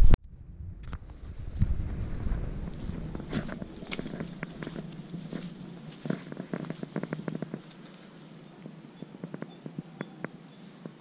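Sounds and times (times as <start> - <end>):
low steady hum: 0.0 - 10.8
footsteps crunching on dry leaves: 1.2 - 9.1.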